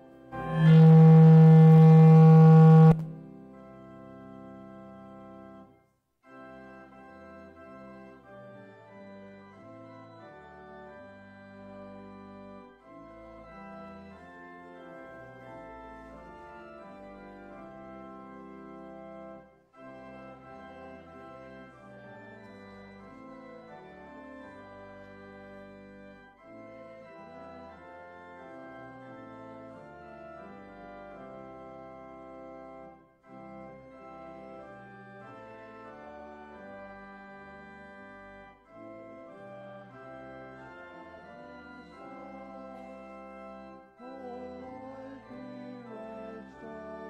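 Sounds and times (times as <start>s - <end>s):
church organ chords: 0.0s - 47.0s
wavering organ line: 0.4s - 4.4s.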